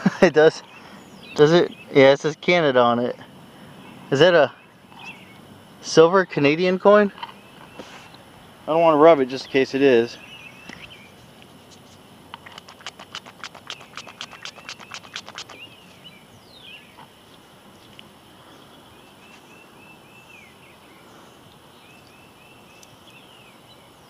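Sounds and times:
birds calling: 12.4 - 16.9.

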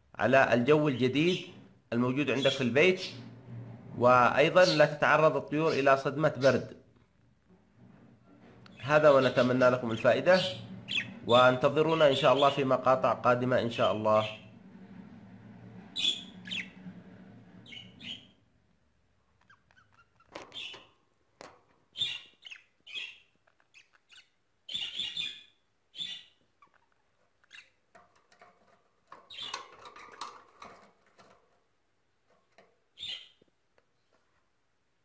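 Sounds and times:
budgerigars chirping: 10.3 - 12.6, 16.0 - 16.8, 17.6 - 18.3, 19.4 - 20.9, 21.9 - 27.8, 33.0 - 33.4.

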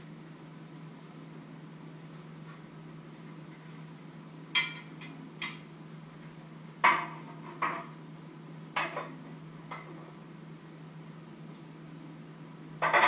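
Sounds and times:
kitchenware clinking: 4.6 - 5.6.

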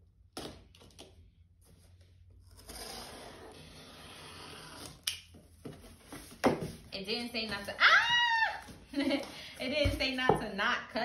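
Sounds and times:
box cutter scraping tape: 2.4 - 5.2.

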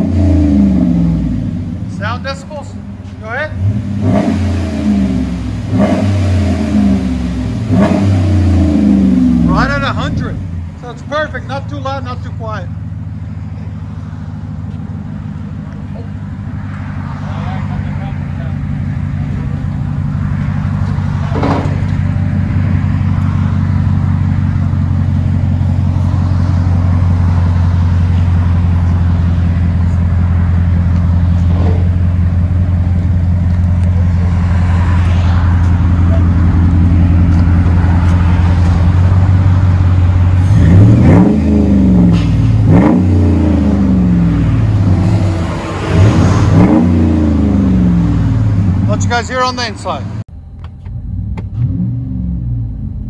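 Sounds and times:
engine revving: 0.0 - 50.3, 51.0 - 53.0
engine idling through exhaust: 9.1 - 16.6, 17.6 - 34.4.

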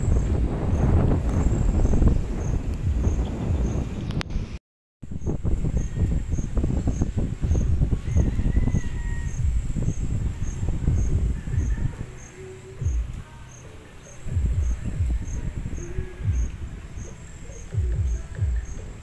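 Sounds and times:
wind rumble on microphone: 0.0 - 19.0
insect chirping: 5.1 - 19.0.

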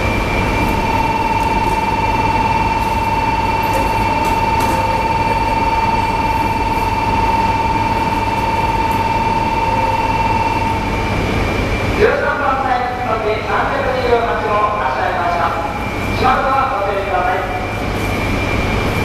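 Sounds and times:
train low hum: 0.0 - 19.0
bell ringing: 0.8 - 11.0.

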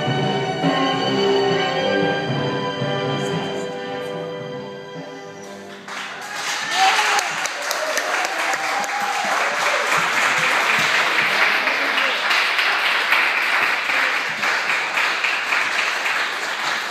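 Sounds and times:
children clapping: 5.7 - 16.9
children calling out: 6.2 - 9.3.

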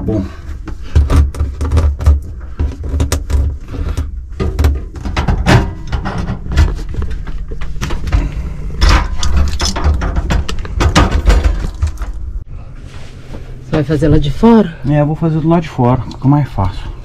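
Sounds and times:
steady low rumble: 3.5 - 17.0.

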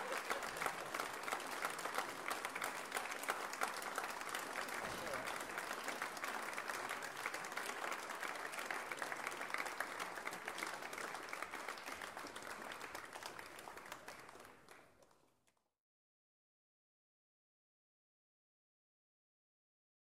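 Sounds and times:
audience applauding: 0.0 - 15.3.

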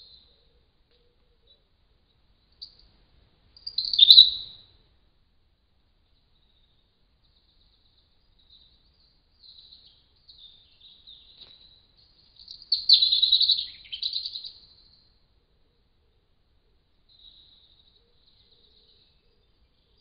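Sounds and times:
songbird trilling: 3.6 - 4.6, 9.4 - 15.1.

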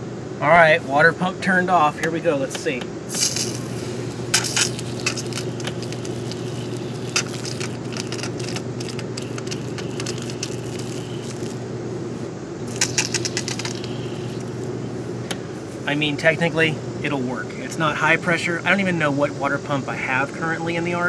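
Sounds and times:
steady low hum: 0.0 - 21.0
clattery clicks: 2.0 - 11.6, 12.7 - 15.4
hose nozzle spraying water: 3.1 - 15.9.

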